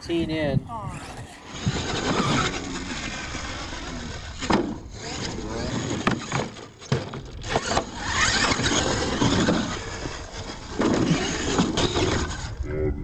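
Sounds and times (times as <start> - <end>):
toy truck motor and tyres on dirt: 0.1 - 13.0.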